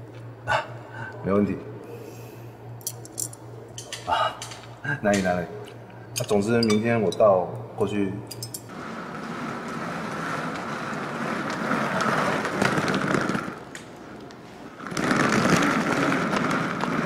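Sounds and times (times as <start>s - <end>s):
small wheels rolling on stone: 8.7s - 13.8s, 14.7s - 17.0s.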